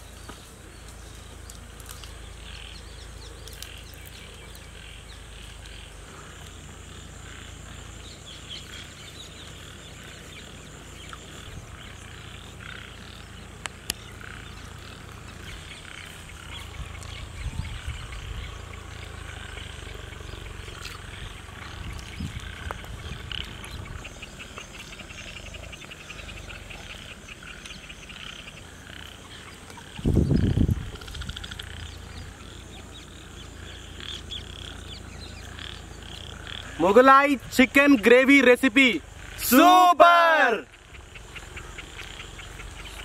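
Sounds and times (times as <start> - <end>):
wind rumble on microphone: 13.1 - 26.4, 29.4 - 36.6.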